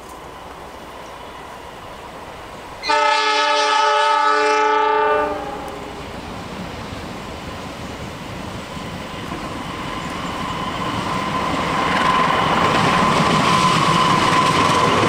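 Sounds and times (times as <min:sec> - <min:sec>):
train rumble: 0:00.0 - 0:15.0
locomotive air horn blast: 0:02.8 - 0:06.0.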